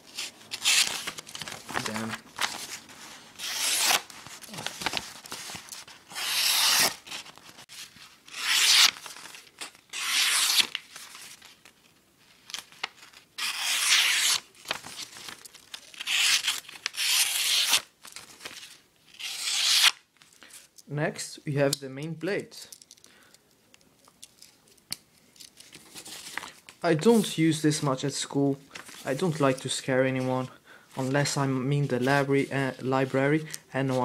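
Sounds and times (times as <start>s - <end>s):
knife slicing paper: 3.4s - 4.1s, 6.1s - 7.2s, 8.3s - 10.8s, 13.4s - 14.5s, 15.9s - 17.9s, 19.2s - 20.0s.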